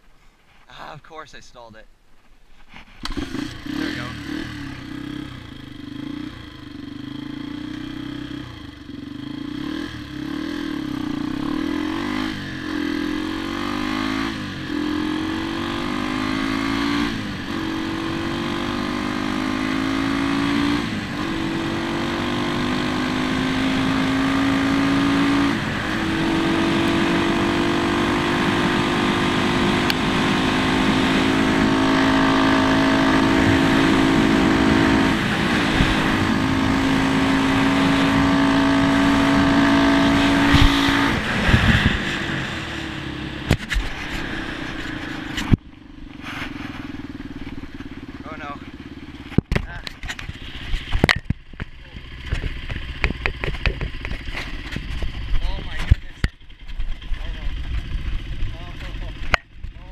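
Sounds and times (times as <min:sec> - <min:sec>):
dirt bike engine accelerating: 0:03.0 - 0:59.9.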